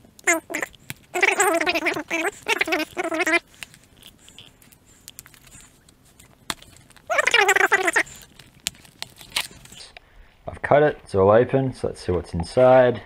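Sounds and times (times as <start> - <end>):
cardboard and tape rustling: 8.0 - 9.9.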